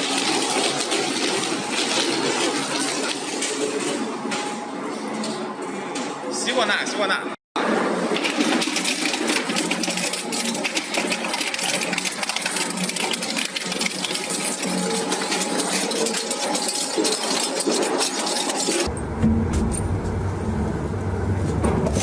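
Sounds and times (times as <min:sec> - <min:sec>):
steady machine hum: 0:18.8 - 0:22.0.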